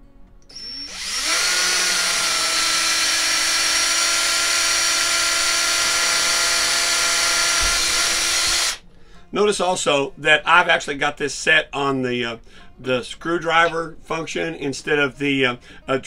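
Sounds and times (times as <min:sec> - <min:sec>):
cordless drill whining: 0:00.5 - 0:08.8.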